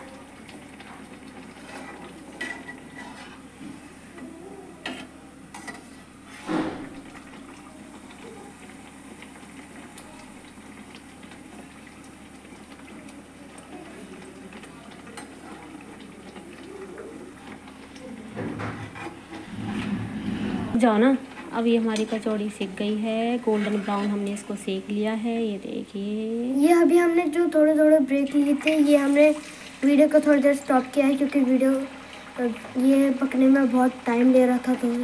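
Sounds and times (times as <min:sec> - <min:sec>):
deep-frying sizzle in oil: 0:00.0 - 0:19.5, 0:20.7 - 0:35.0
metal spatula scraping a pan: 0:01.6 - 0:03.7, 0:18.6 - 0:20.8, 0:23.4 - 0:24.4.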